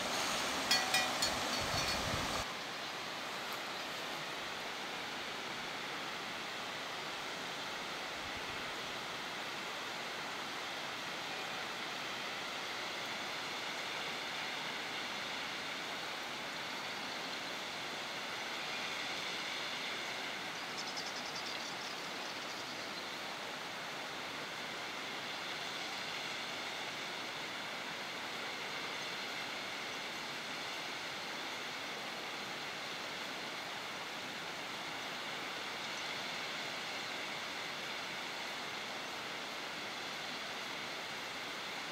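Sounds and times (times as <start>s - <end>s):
waterfall rushing: 0.0s - 3.4s.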